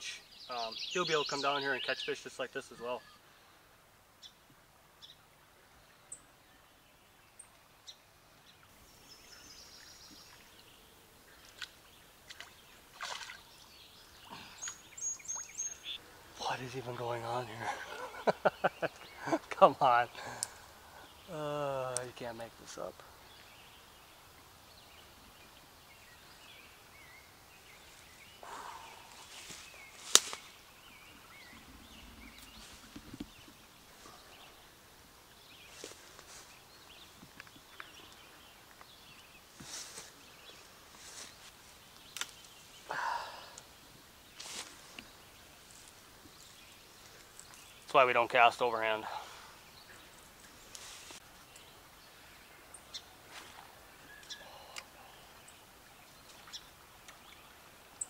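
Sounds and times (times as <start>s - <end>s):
bird chirps: 0.0s - 3.2s, 12.3s - 19.5s, 54.0s - 55.6s
songbird chirps: 0.0s - 58.0s
splash on water: 11.6s - 13.5s.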